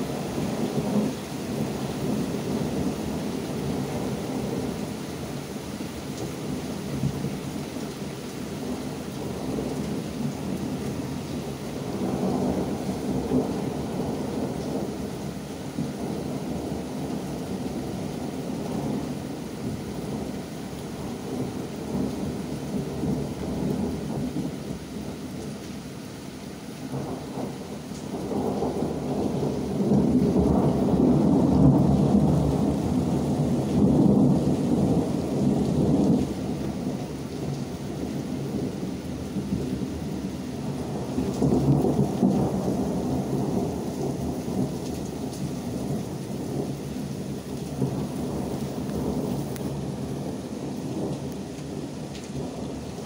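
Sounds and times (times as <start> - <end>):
steady rain: 0.0 - 53.0
rolling thunder: 8.7 - 24.6, 26.9 - 53.0.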